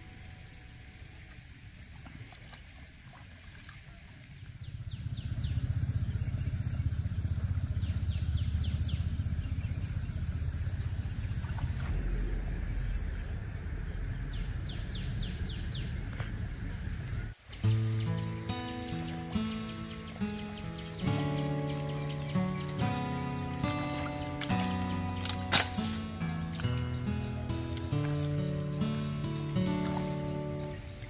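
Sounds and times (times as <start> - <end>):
insect drone: 0.0 - 31.0
birds chirping: 3.8 - 31.0
low rumbling noise: 4.4 - 31.0.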